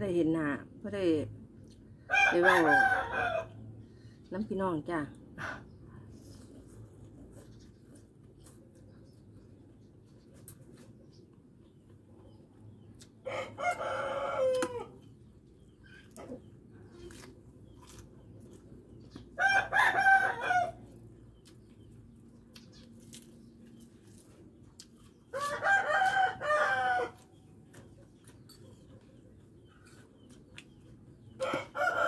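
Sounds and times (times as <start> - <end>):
rooster crowing: 2.1 - 3.6, 13.2 - 15.0, 19.4 - 20.9, 25.4 - 27.2, 31.4 - 32.0.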